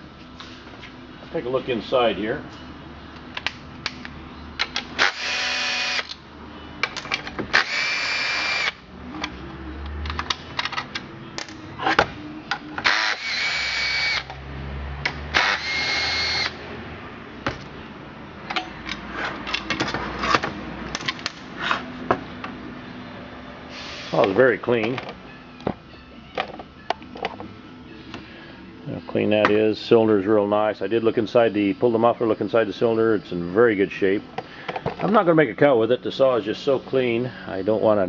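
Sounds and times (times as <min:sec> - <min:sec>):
cordless drill whining: 0:05.0 - 0:06.1, 0:07.5 - 0:08.8, 0:12.8 - 0:14.3, 0:15.3 - 0:16.6.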